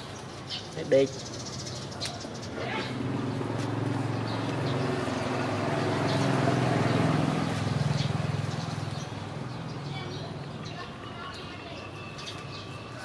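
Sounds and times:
passing vehicle engine hum: 2.5 - 10.6.

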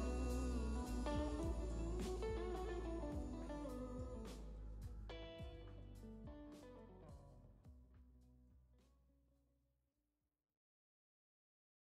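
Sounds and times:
plucked guitar notes: 0.0 - 7.3.

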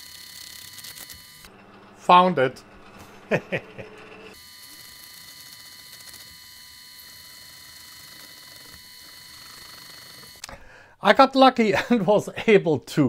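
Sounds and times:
lathe whine and buzz: 0.0 - 10.4.

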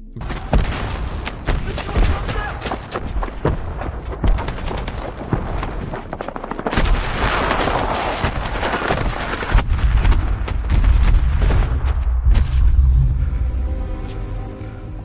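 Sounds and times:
rapid gunfire: 0.4 - 11.5
deep rumbling: 9.6 - 15.0.

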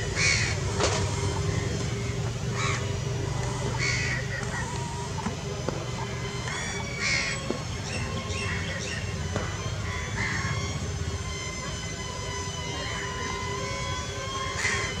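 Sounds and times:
crows cawing: 0.1 - 5.2, 6.1 - 7.4, 8.3 - 9.0, 9.8 - 10.7, 14.5 - 15.0
steady high tone: 4.8 - 15.0.

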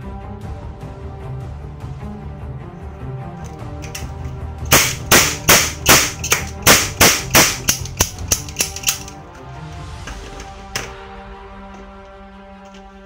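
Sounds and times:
background music: 0.0 - 13.0
cap gun cracks: 3.5 - 9.2.

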